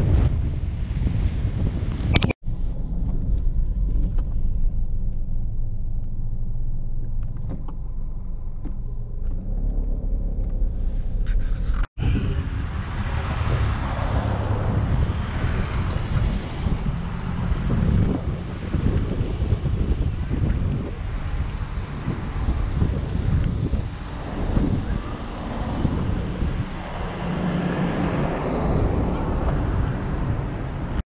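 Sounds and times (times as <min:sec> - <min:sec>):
wind and tyre noise: 0:00.0 - 0:31.0
car engine rumble from inside: 0:02.4 - 0:12.7.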